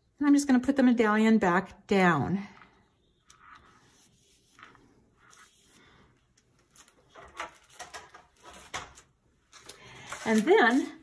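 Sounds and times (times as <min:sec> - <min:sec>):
paper rustling: 0:03.2 - 0:11.0.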